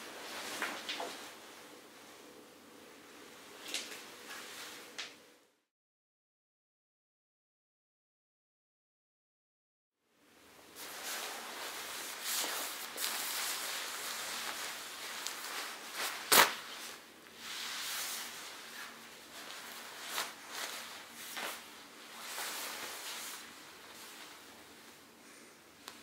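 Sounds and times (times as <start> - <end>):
nylon jacket rustling: 0.0 - 1.6, 10.8 - 25.1.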